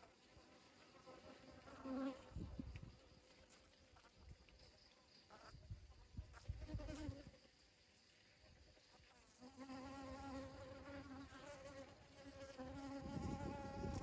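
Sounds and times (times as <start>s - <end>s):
honeybee buzzing in flight: 0.7s - 2.6s, 6.3s - 7.4s, 9.3s - 14.0s.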